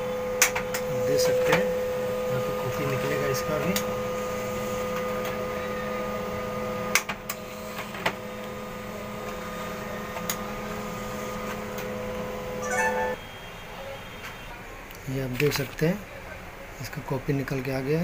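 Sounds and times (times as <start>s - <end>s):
laser printer humming: 0.0s - 14.2s
paper feed clicks: 2.7s - 12.2s.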